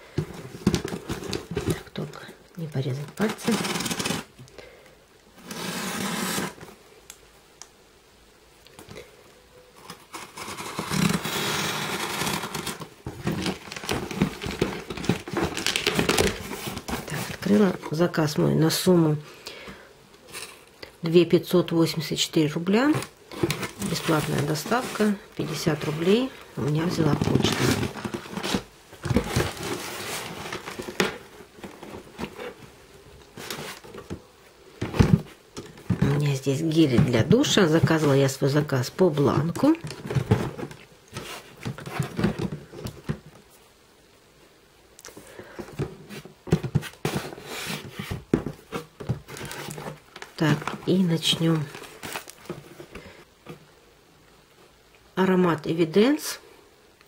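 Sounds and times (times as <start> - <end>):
cardboard rustling: 0.0 - 2.2, 2.9 - 4.4, 5.4 - 6.8, 9.8 - 18.2, 22.7 - 43.6, 45.2 - 53.7
scratching: 3.0 - 4.3
plastic wrapping ripping: 10.2 - 17.2.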